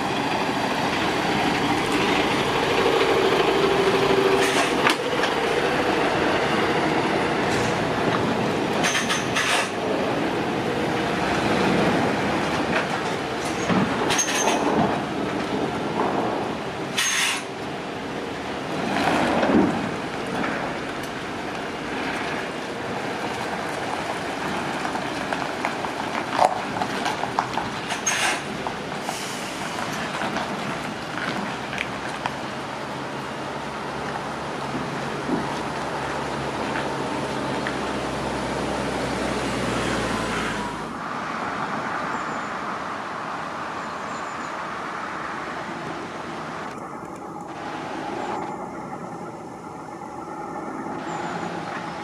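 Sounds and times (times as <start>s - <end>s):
lorry diesel engine driving past: 0.0s - 8.8s
trailer rattle: 0.0s - 32.5s.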